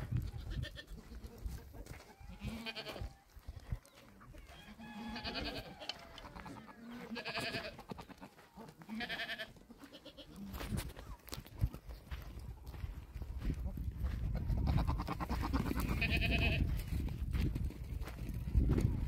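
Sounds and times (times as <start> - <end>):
goats bleating: 0.4 - 1.0, 2.3 - 3.1, 4.5 - 10.6, 14.6 - 16.8.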